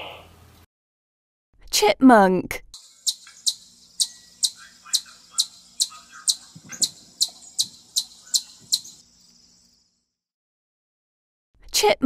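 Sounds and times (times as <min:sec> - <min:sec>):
chipmunk alarm call: 0:02.8 - 0:09.8.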